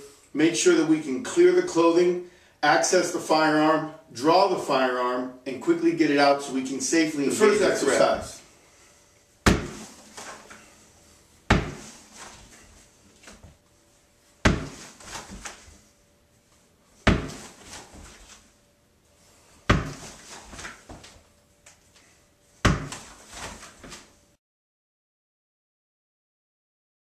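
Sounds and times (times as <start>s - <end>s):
ball bouncing on hardwood floor: 9.4s - 10.0s, 11.5s - 11.9s, 14.4s - 15.5s, 17.1s - 18.1s, 19.7s - 21.1s, 22.6s - 23.1s
clothing rustling: 9.5s - 24.3s.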